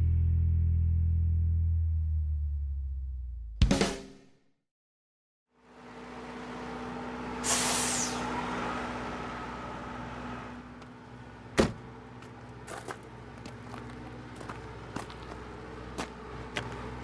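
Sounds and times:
vehicle engine running: 5.6s - 17.0s.

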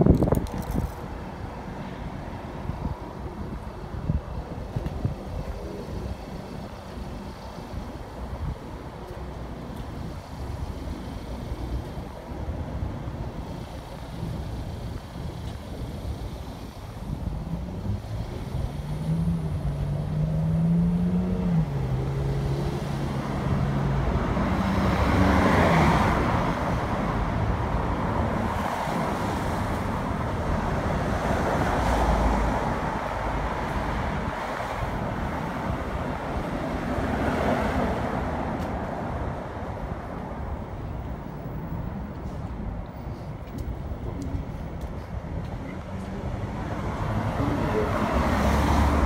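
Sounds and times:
vehicles passing close by: 0.0s - 49.0s
engine hum shifting pitch: 17.6s - 26.2s.

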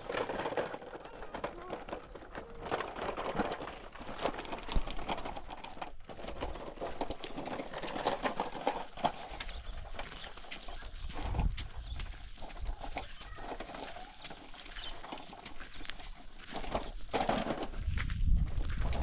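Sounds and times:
footsteps on wet gravel: 2.0s - 19.0s.

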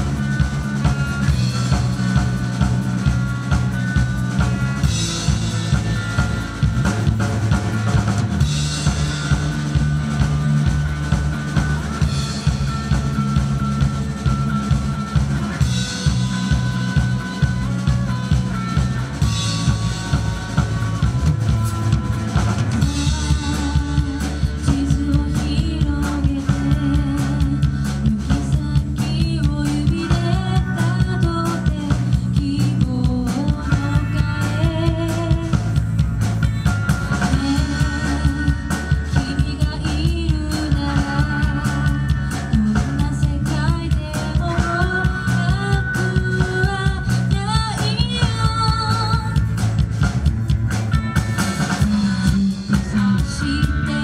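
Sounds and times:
pop-rock band playing: 0.0s - 54.0s
woman singing lead vocal: 22.8s - 35.9s, 37.2s - 49.5s, 51.8s - 54.0s.

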